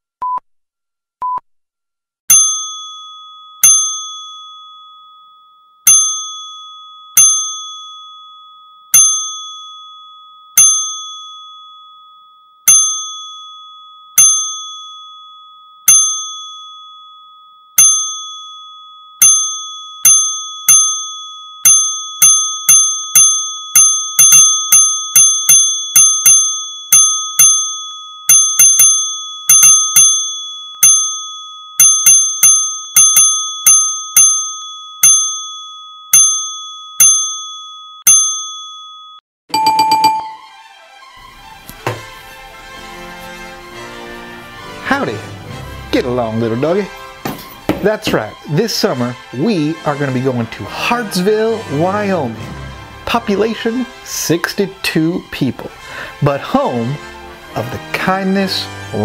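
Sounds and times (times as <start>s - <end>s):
bright bell ding: 2.3s - 40.5s.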